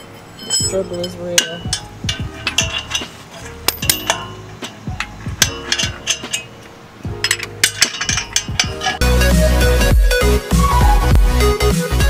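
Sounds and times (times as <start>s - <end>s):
metal tools clicking and knocking: 0.0s - 9.0s.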